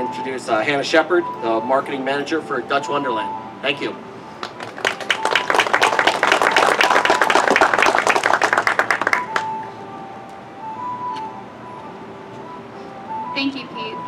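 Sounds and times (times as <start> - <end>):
audience applauding: 4.4 - 9.6.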